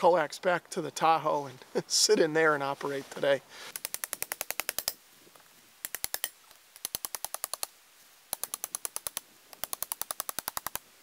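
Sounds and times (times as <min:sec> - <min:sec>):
rapid sharp clicks: 0:03.7 - 0:05.0, 0:05.8 - 0:07.7, 0:08.3 - 0:10.8.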